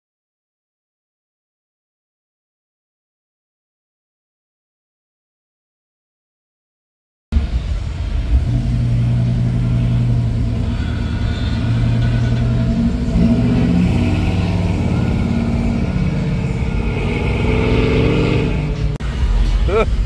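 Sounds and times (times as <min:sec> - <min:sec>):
car engine low rumble: 0:07.3 - 0:20.0.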